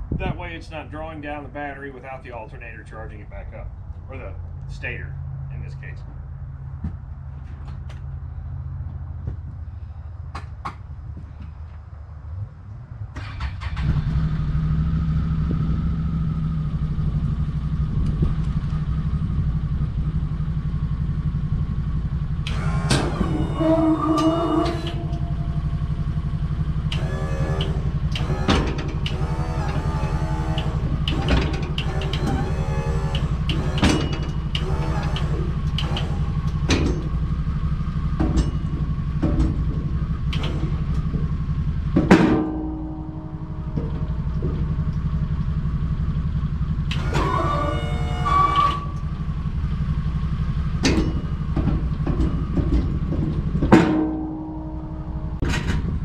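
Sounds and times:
engine idling: 13.1s - 56.0s
hydraulic pump whining: 21.7s - 56.0s
sharp clunk: 42.0s - 44.9s, 50.8s - 56.0s.

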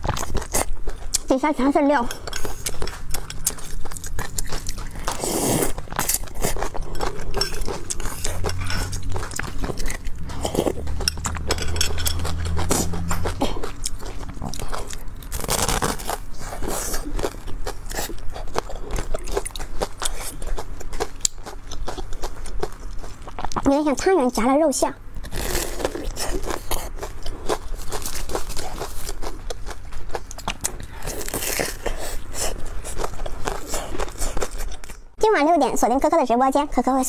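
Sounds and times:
chewing and mouth noises: 0.0s - 24.1s, 25.2s - 35.1s
slurping: 2.4s - 17.2s.

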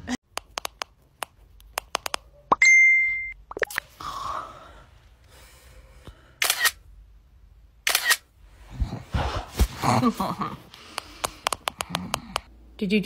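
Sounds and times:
phone camera shutter clicks: 6.4s - 6.8s, 7.8s - 8.3s.

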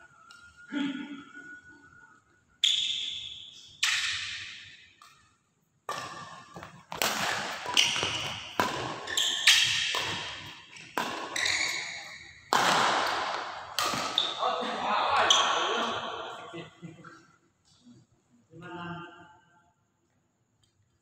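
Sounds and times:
badminton rackets hitting shuttlecock: 2.7s - 5.2s, 5.9s - 14.4s.

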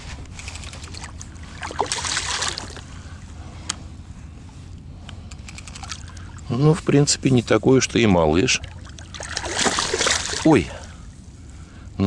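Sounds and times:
fish splashing at surface: 0.6s - 2.8s, 8.6s - 10.5s.

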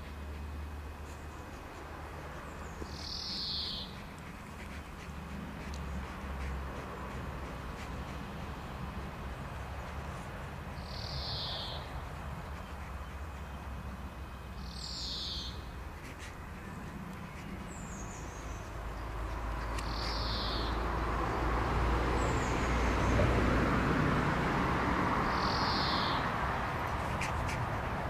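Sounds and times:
broad rushing noise: 0.0s - 14.7s, 15.6s - 28.0s
bird calling: 1.0s - 8.5s, 10.8s - 13.8s, 14.6s - 20.8s.

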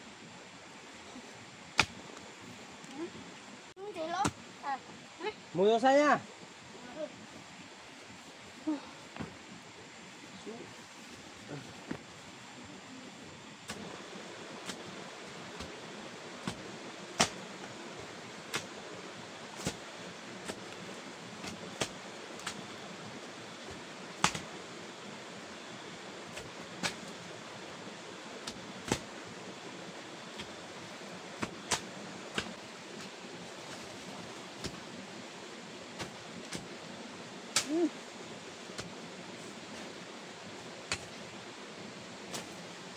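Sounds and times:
steady hiss: 0.0s - 42.9s
hoe chopping into earth: 17.2s - 17.4s, 24.2s - 24.5s.

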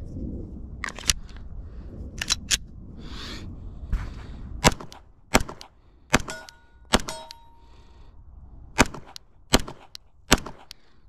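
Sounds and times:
pistol metallic clicks: 2.2s - 2.6s, 4.6s - 7.6s, 8.8s - 11.0s
pistol shots: 4.6s - 7.4s, 8.8s - 10.8s.

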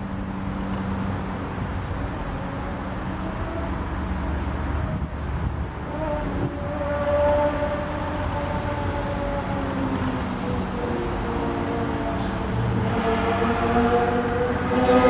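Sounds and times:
passing vehicle hum: 0.0s - 15.0s
road traffic rumble: 0.0s - 15.0s
wind on microphone: 4.4s - 15.0s.

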